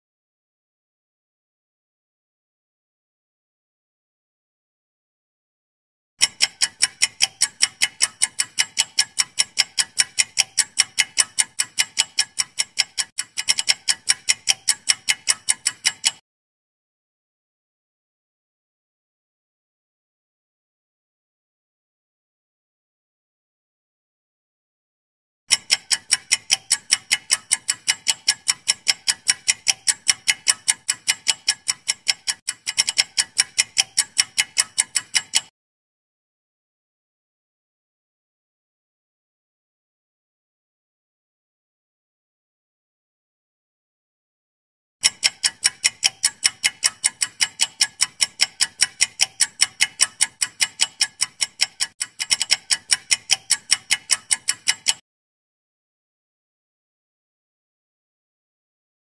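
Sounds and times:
clock ticking: 0:06.2 - 0:16.2, 0:25.5 - 0:35.5, 0:45.0 - 0:55.0.

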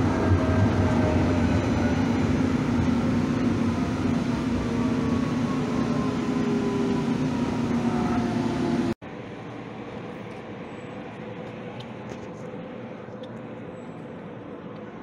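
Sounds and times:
light rail train motor whine: 0:00.0 - 0:09.0.

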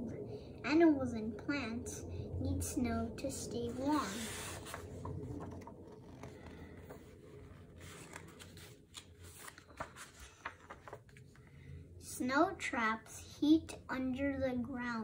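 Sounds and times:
book pages turning: 0:03.7 - 0:11.5.

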